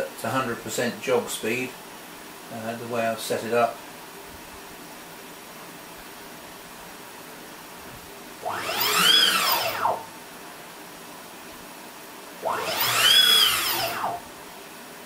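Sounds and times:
stepper motor whine: 8.4s - 10.1s, 12.4s - 14.4s.

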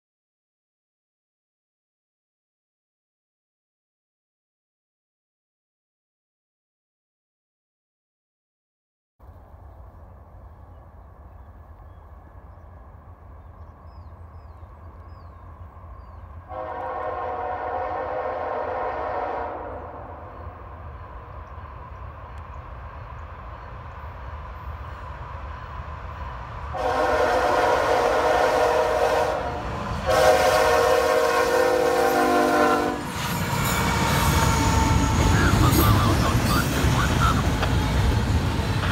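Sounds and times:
train low rumble: 9.2s - 38.9s
locomotive air horn blasts: 16.5s - 20.2s, 26.7s - 35.4s.

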